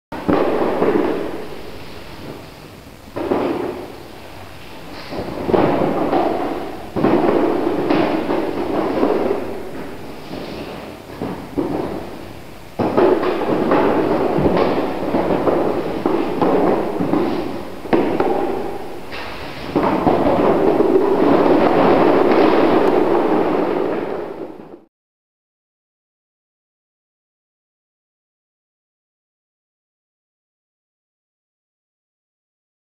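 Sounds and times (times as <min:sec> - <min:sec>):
boxes pushed with rumbling thuds: 0:00.2 - 0:24.9.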